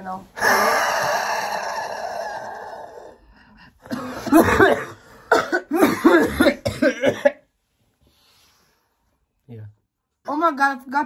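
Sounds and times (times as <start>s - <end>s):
person coughing: 3.8s - 7.4s.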